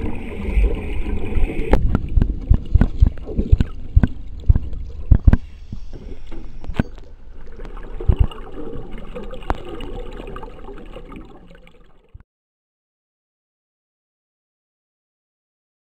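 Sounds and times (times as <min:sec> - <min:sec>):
underwater bubbles gurgling: 0:00.0 - 0:12.2
sharp clicks and low knocks: 0:01.7 - 0:08.4.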